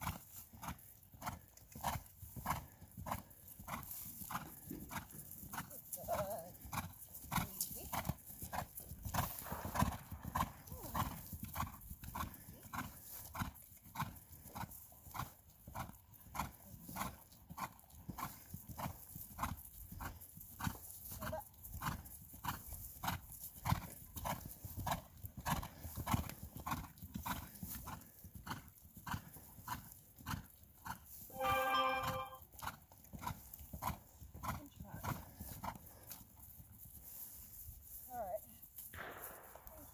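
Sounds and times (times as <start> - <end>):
horse hooves trotting on grass: 0.0 - 39.9
brief steady-pitched call: 31.3 - 32.4.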